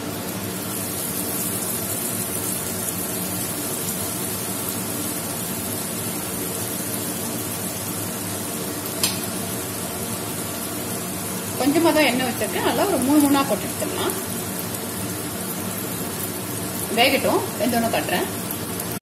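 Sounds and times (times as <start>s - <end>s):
oil sizzling: 0.0s - 19.0s.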